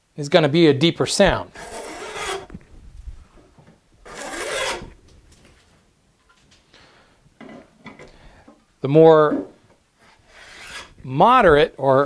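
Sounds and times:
hand plane shaving a board: 1.5 - 2.5, 4.1 - 4.9, 10.0 - 11.0.

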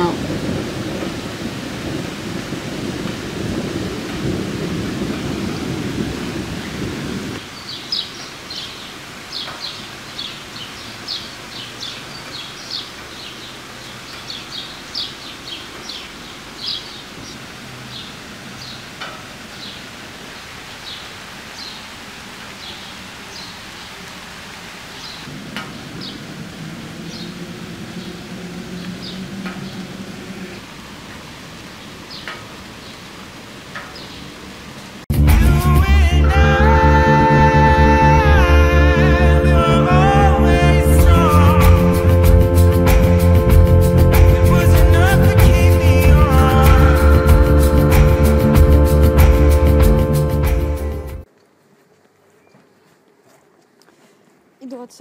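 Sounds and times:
low rumbling thunder: 0.0 - 7.4, 25.2 - 30.7
rain hissing: 0.0 - 51.6.

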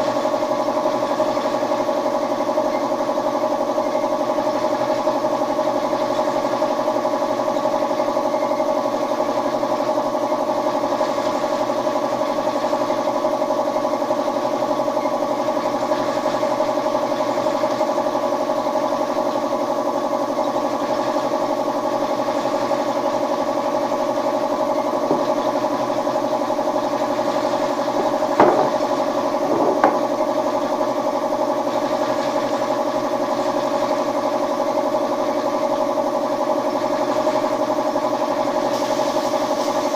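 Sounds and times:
motor humming: 22.8 - 31.2
short knocks: 28.4 - 30.1.

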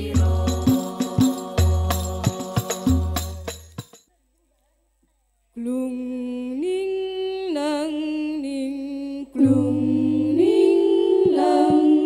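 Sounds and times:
girls singing unaccompanied: 0.0 - 3.5, 6.4 - 12.0.

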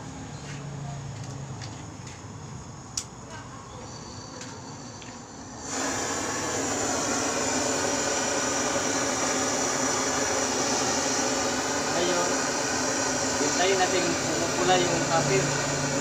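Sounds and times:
torch flame hissing: 3.8 - 16.0.

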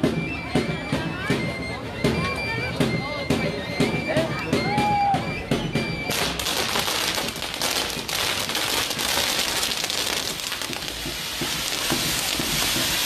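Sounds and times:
fireworks crackling and hissing: 5.8 - 13.0.

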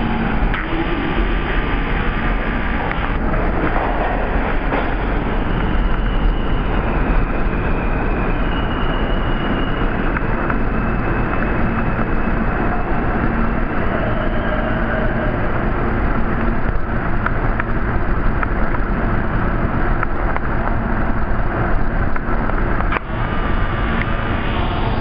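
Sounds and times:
subway train wheels rumbling: 0.0 - 25.0
faint high squeal: 4.0 - 15.8, 23.0 - 25.0.

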